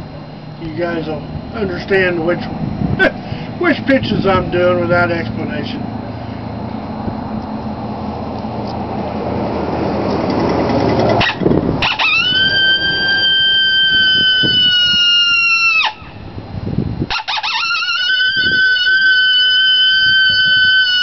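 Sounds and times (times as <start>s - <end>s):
low rumbling noise: 0.0s - 21.0s
horn howler call: 11.2s - 16.2s, 17.1s - 21.0s.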